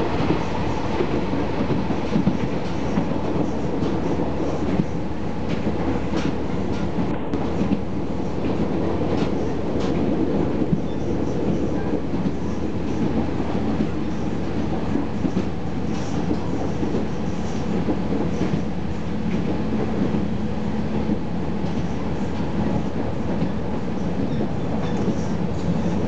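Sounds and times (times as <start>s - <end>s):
faint rail-joint clicks: 15.0s - 18.6s, 24.2s - 26.0s.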